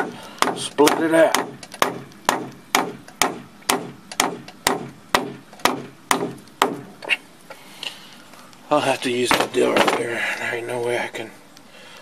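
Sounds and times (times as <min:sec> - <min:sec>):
hammer striking nail into wood: 0:00.0 - 0:06.9.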